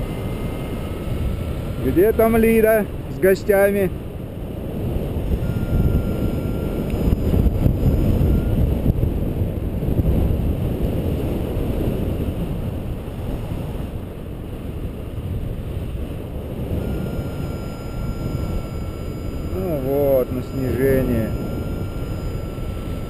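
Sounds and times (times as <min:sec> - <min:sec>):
wind buffeting microphone: 0:00.0 - 0:23.0
faint high tone: 0:16.8 - 0:23.0.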